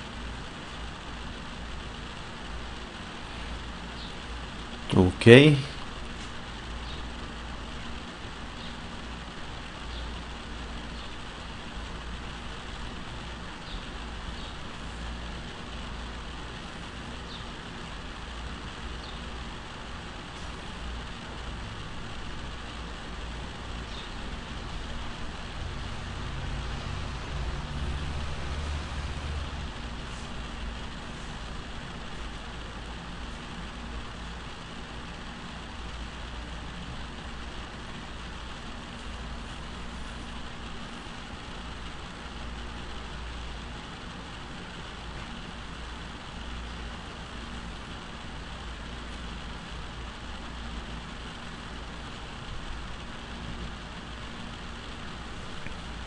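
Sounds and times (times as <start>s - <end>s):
background hiss: 0.0s - 42.7s.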